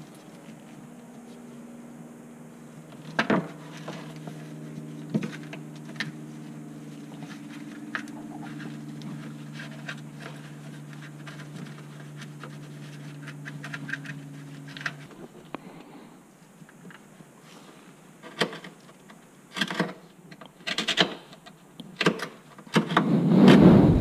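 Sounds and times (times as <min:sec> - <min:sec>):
steady low hum: 0:00.0 - 0:18.2, 0:23.0 - 0:24.0.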